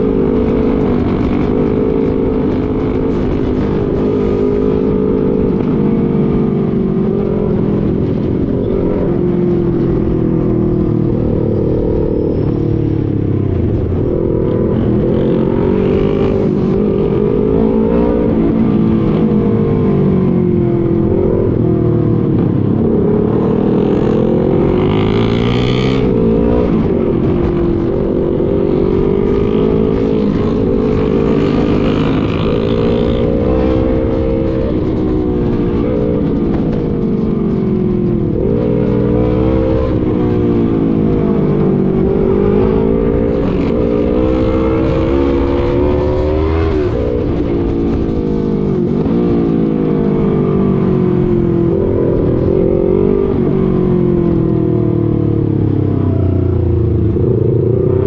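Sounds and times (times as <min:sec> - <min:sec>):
motorcycle engine revving: 0:00.0 - 0:58.0
road noise rushing: 0:00.0 - 0:58.0.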